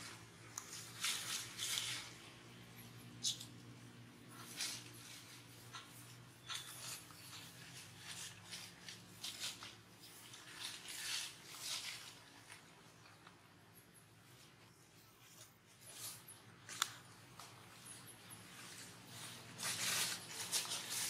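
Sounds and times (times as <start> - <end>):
dry leaves rustling: 0.0 - 12.7, 17.4 - 21.0
low steady hum: 0.0 - 21.0.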